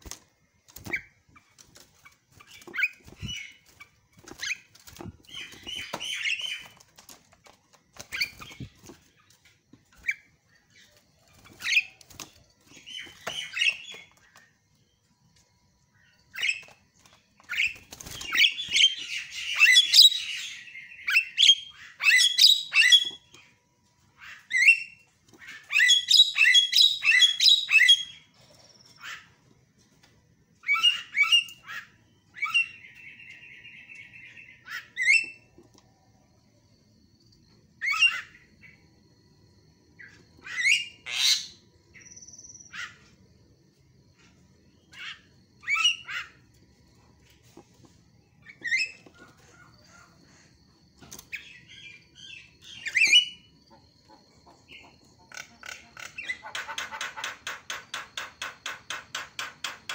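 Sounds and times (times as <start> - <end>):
bird harsh chattering calls: 54.1 - 59.9.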